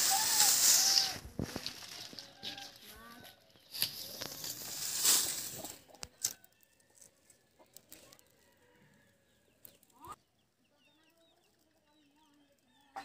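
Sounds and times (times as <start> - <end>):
dry leaves rustling and crackling: 0.0 - 7.1
twigs snapping: 3.7 - 6.4.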